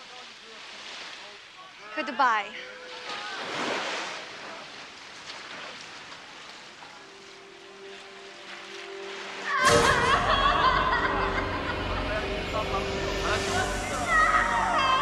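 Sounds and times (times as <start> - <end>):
waves washing onto beach: 0.0 - 2.1, 2.8 - 11.2.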